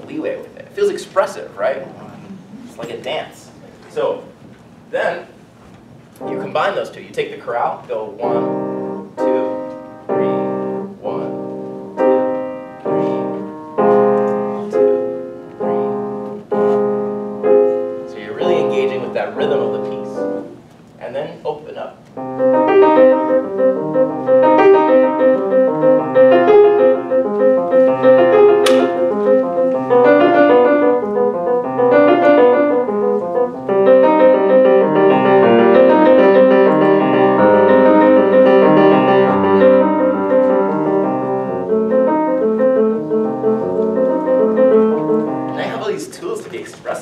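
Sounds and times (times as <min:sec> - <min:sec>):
grand piano chorale: 0:22.2 - 0:46.1.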